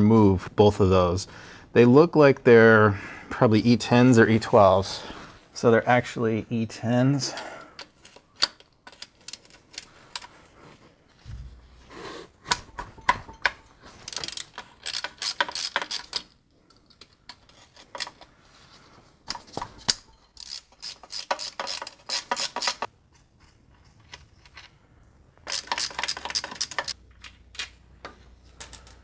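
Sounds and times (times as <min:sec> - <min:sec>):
hand ratchet clicking: 0:14.1 - 0:16.3, 0:19.9 - 0:22.9.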